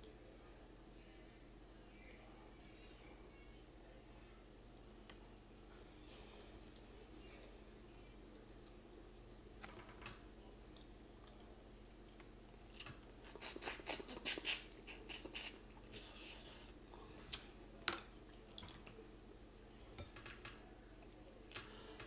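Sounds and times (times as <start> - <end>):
wet sucking and chewing: 12.7 - 16.4.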